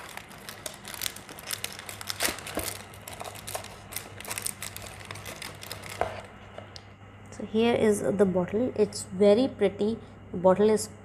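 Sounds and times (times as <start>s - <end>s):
plastic wrap crinkling: 0.0s - 6.6s.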